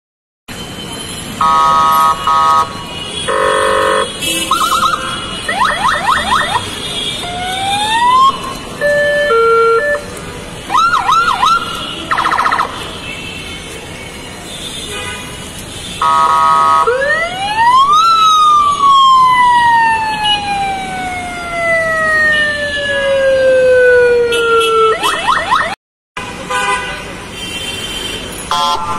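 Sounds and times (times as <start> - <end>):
car horn blast: 1.4 - 5.3
car siren tones: 3.3 - 10.1, 10.7 - 12.8, 16.0 - 25.8
long siren wail: 3.4 - 10.0, 10.7 - 12.8, 16.0 - 25.8.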